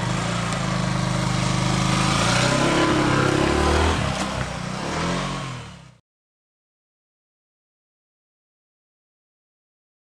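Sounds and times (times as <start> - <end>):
motorcycle engine riding off: 0.0 - 6.0.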